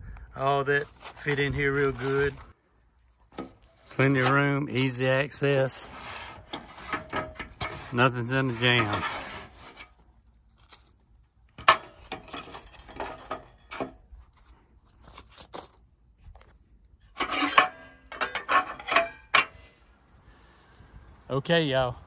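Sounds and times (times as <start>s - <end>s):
plastic scraping inside metal tube: 5.6s - 10.0s.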